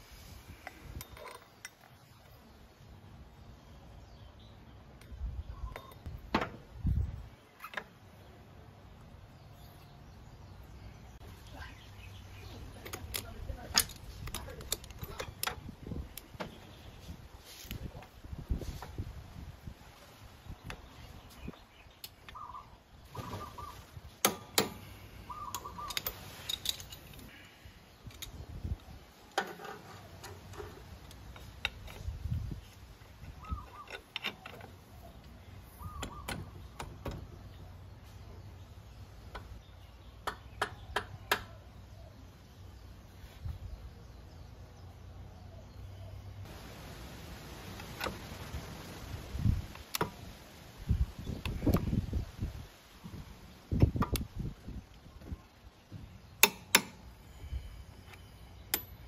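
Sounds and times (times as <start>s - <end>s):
bird calls: 3.6s - 6.1s, 20.5s - 24.1s, 24.7s - 46.5s
metal parts clicking: 12.8s - 16.2s, 25.5s - 27.3s
tool handling ticks: 29.3s - 35.3s.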